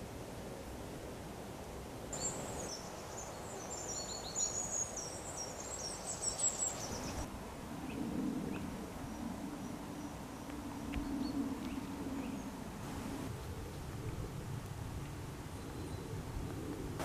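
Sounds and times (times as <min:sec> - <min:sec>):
songbird chirping and trilling: 0:02.2 - 0:13.2.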